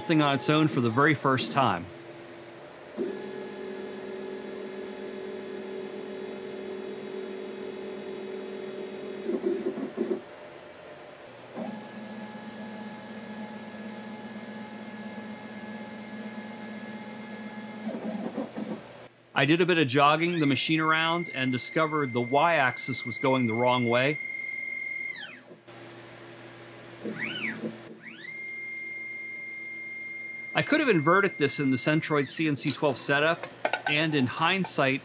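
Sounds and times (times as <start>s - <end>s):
stepper motors whining: 0.0s - 1.8s, 26.9s - 32.9s.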